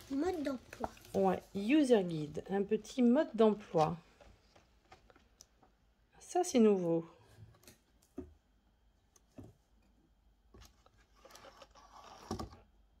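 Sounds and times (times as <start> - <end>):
paper pages turning: 0.0 - 2.2, 10.6 - 12.6.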